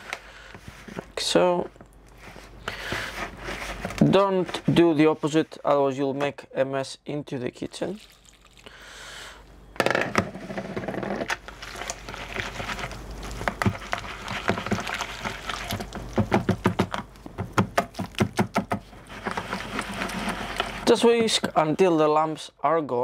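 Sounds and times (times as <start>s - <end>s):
liquid pouring into bowl: 7.9s - 8.9s
whisk scraping plastic bowl: 11.6s - 21.4s.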